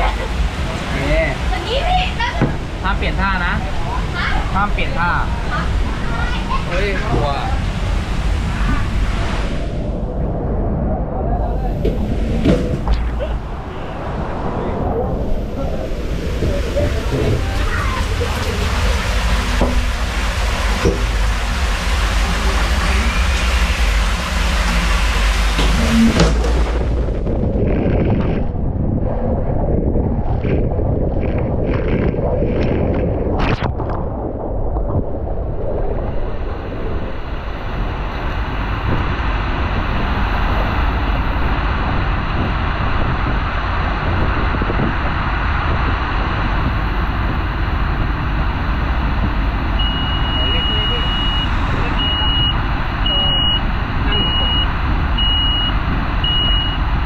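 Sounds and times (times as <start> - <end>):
water rushing: 0.0 - 10.2, 11.5 - 28.5
wind rumble on microphone: 0.0 - 57.0.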